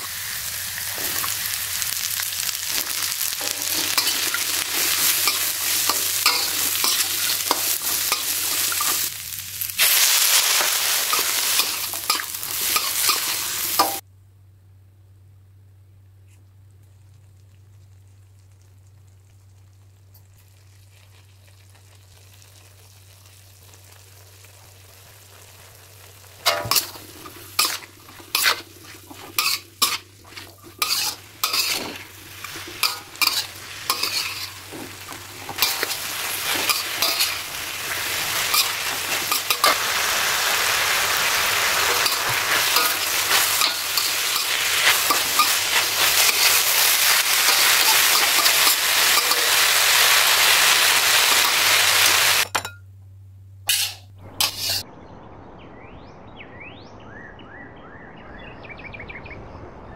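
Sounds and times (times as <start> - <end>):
frying sizzle: 0.0 - 14.0, 17.1 - 52.7, 53.6 - 54.8
spatula scraping pan: 2.8 - 9.1, 9.9 - 14.0, 26.5 - 39.9, 41.7 - 49.8, 53.7 - 54.8.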